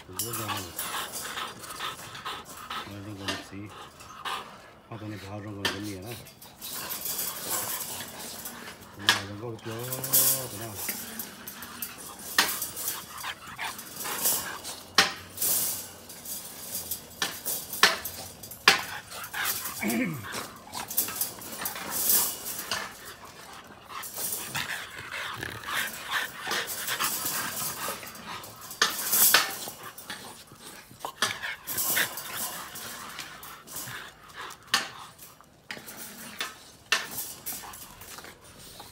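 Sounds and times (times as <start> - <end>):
dogs barking and yipping: 0.0 - 38.9
wire playpen rattling: 6.6 - 35.2.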